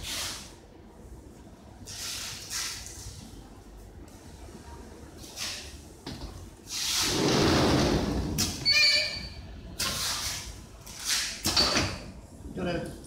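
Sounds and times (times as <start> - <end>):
short squeal: 8.6 - 9.5.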